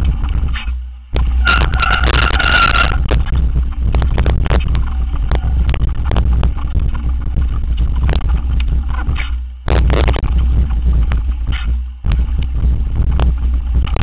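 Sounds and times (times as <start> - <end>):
bike knocking and rattling: 0.0 - 14.0
wind buffeting microphone: 0.0 - 14.0
high squeal: 1.4 - 3.0.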